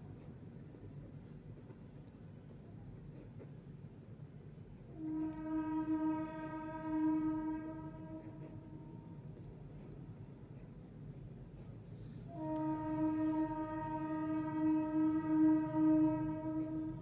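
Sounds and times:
constant low hum: 0.0s - 17.0s
steady horn-like tone: 4.7s - 10.0s, 11.6s - 17.0s.

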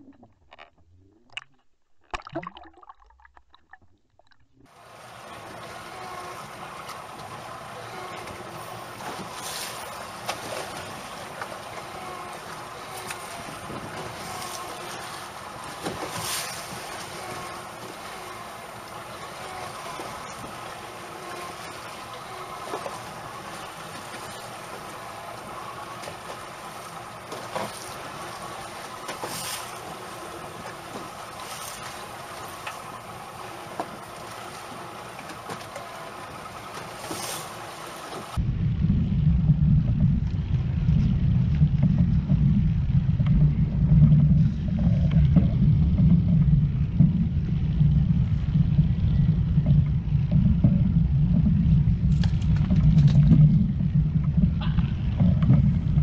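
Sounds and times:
wind and water noise: 0.0s - 56.0s
low rumble: 38.4s - 56.0s
knocks on boat: 52.2s - 56.0s.

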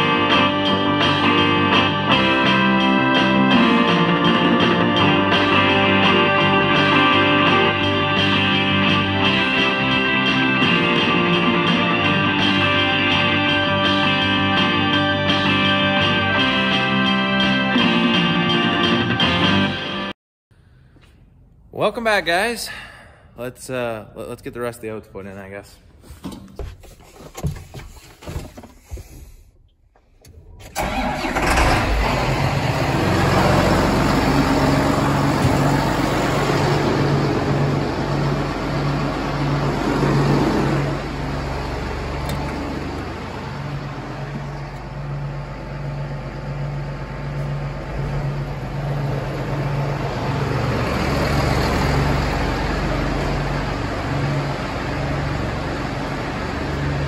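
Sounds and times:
tractor engine idling: 30.2s - 57.0s.

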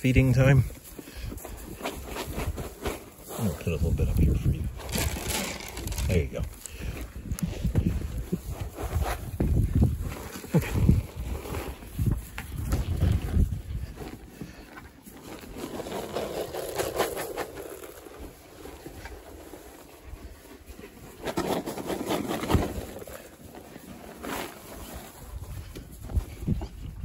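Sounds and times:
rustling through hay: 0.3s - 6.7s.

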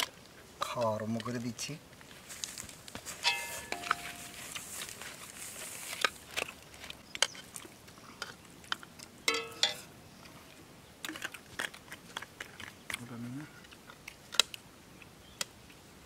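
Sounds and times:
person chewing and smacking: 5.8s - 9.2s, 10.2s - 15.5s.

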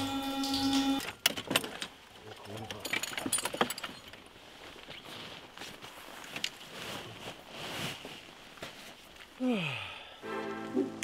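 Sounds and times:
bags and gear rustling: 4.3s - 9.4s.

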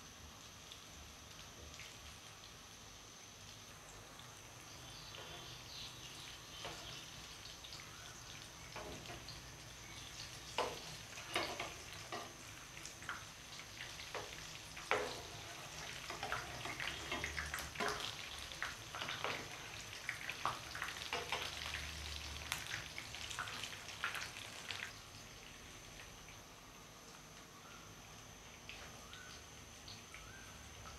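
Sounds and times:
oil sizzling with pops: 0.0s - 30.9s
spatula scraping a pan: 10.6s - 12.5s, 14.2s - 18.2s.

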